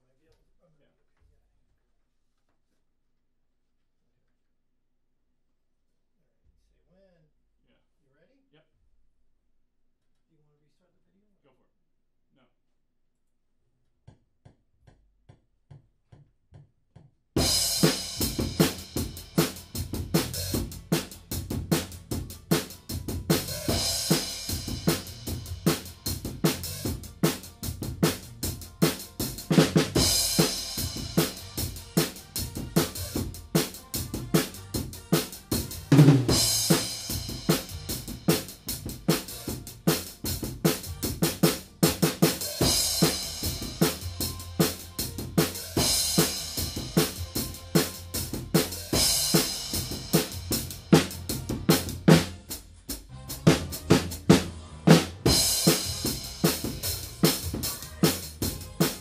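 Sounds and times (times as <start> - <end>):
drum kit groove: 17.4 - 59.0.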